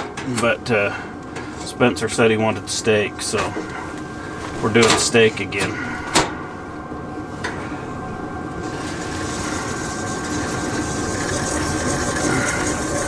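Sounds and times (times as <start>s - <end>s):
gas hissing from burner: 8.5s - 13.0s.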